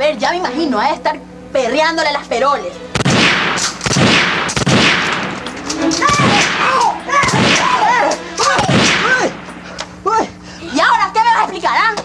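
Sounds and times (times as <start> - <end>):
gunshots: 2.9 - 9.6
men crying out: 5.3 - 11.0.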